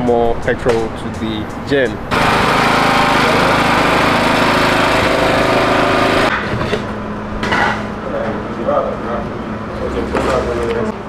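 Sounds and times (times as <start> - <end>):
generator engine running: 2.0 - 6.3.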